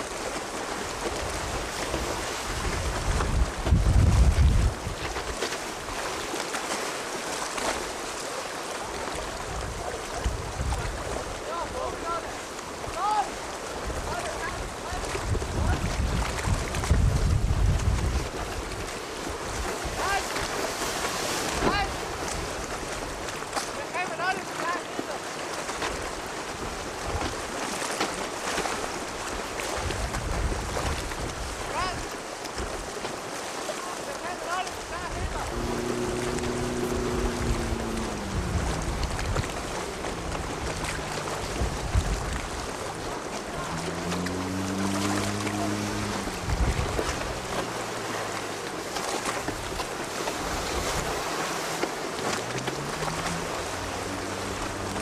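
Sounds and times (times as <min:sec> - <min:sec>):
small waves washing ashore: 0:00.0 - 0:55.0
surf: 0:00.0 - 0:55.0
wind buffeting microphone: 0:01.2 - 0:06.0, 0:09.3 - 0:11.4, 0:13.8 - 0:20.7, 0:29.7 - 0:32.8, 0:35.0 - 0:55.0
low hum rising in pitch: 0:35.3 - 0:48.9.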